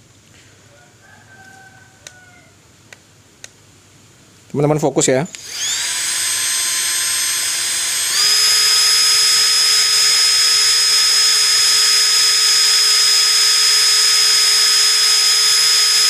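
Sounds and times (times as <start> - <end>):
impact driver motor whine: 5.4 - 16.0.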